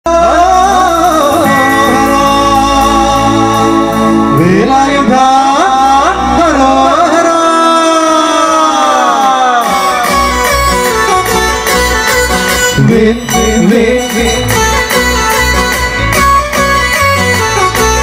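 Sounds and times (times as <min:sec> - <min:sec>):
keyboard and band backing: 0:00.0 - 0:18.0
men singing into microphones: 0:00.1 - 0:09.9, 0:12.8 - 0:15.0.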